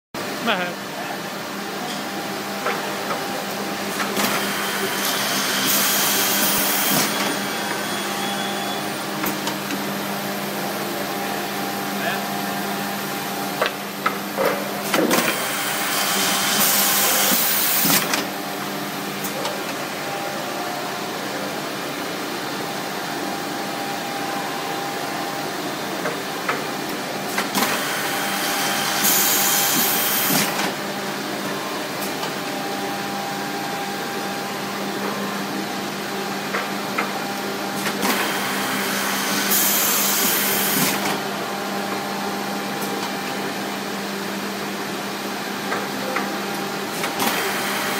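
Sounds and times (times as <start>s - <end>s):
drilling with high hiss: 15.3s - 17.9s.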